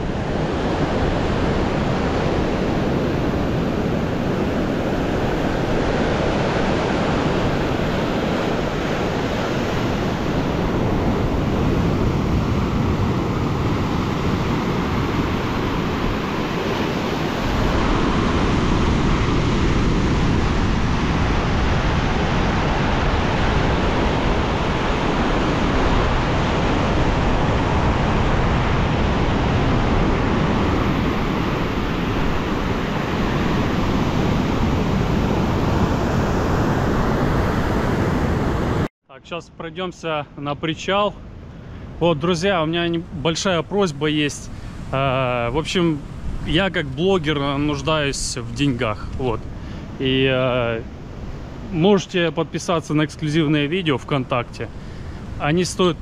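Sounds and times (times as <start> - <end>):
wind buffeting microphone: 0.0 - 38.9, 41.2 - 52.0.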